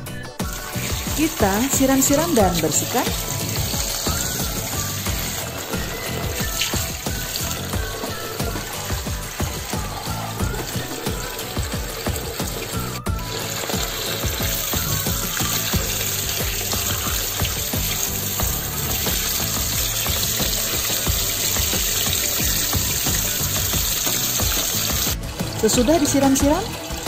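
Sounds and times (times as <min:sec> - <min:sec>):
background music: 0:00.0 - 0:27.0
tap water running onto rice: 0:00.4 - 0:27.0.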